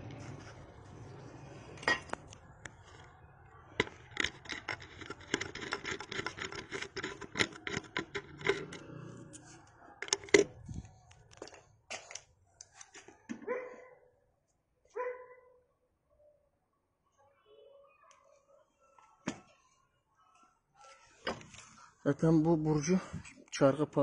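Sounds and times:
metal parts clicking and scraping: 1.6s - 3.2s, 3.8s - 12.3s.

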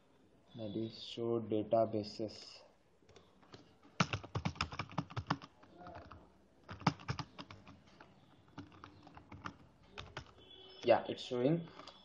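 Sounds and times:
computer keyboard typing: 3.1s - 10.4s.

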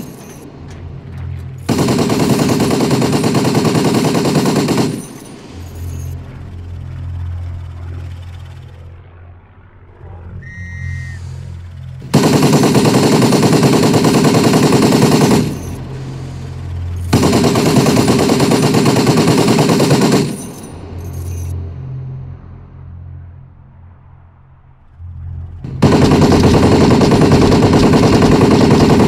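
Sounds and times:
machine guns firing: 0.0s - 0.4s, 1.6s - 8.6s, 11.9s - 21.5s, 25.6s - 29.0s.

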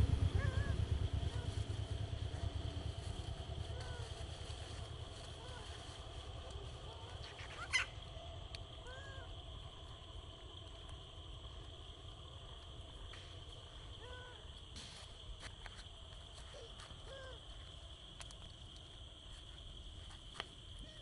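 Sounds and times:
soft hooting calls: 0.0s - 9.9s
insect drone: 0.0s - 21.0s.

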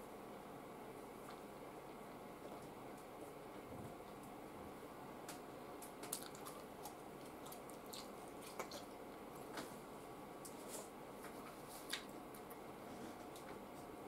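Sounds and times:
low room hum: 0.0s - 14.0s
man chewing food: 5.8s - 9.5s.

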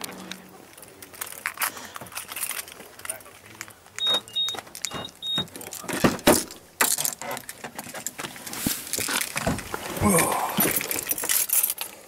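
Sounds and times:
car keys jangling: 1.0s - 8.2s, 10.6s - 12.0s
short high beeps: 4.0s - 5.5s
car door clicks: 4.0s - 6.6s
rustling and knocking: 4.6s - 10.0s.

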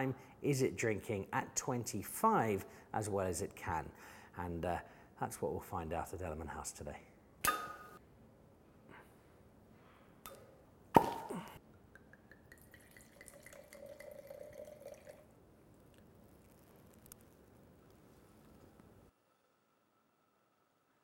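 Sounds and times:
cork popping from bottle: 7.4s - 8.0s, 10.2s - 12.8s
wine glugging into a glass: 10.3s - 15.4s.

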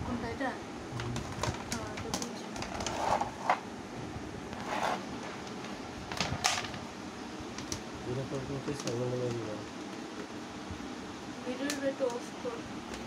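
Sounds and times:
plastic parts scraping and knocking: 1.0s - 3.6s.

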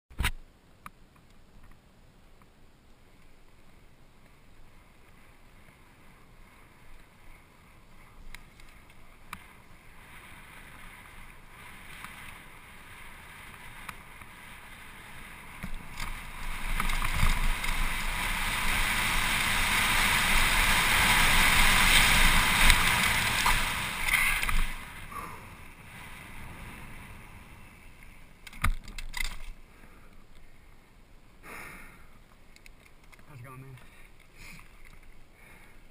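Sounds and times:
tyres rumbling over rough ground: 4.3s - 29.7s.

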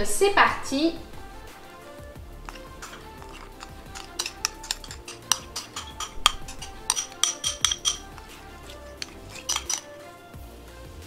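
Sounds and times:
background music: 0.0s - 11.0s
metal spoon clinking on glass bowl: 2.5s - 10.0s.

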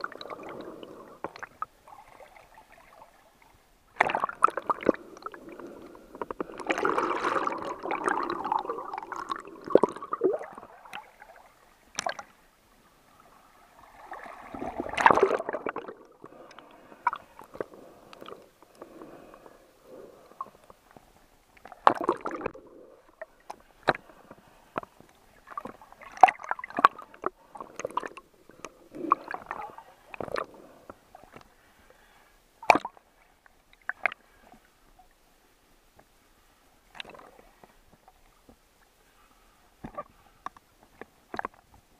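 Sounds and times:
water sloshing: 13.7s - 19.4s.

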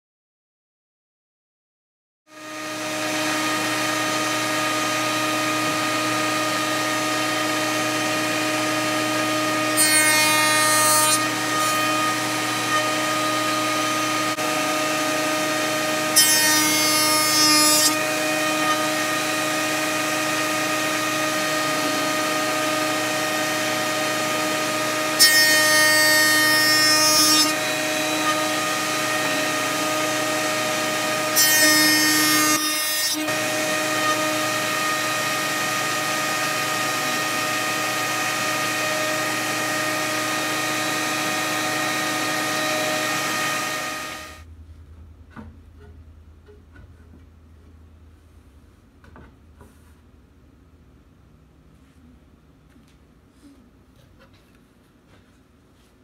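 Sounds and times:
board cutting noise: 2.3s - 44.5s
woodworking machine motor whine: 2.3s - 44.5s.

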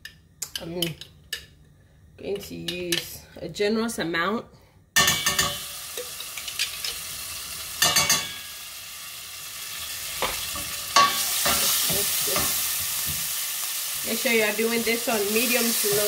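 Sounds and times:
paste sizzling in hot oil: 5.4s - 16.0s.

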